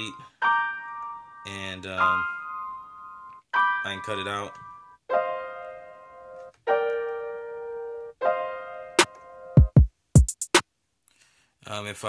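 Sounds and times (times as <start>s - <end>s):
sampled piano chords: 0.0s - 9.8s
kick drums: 9.6s - 10.6s.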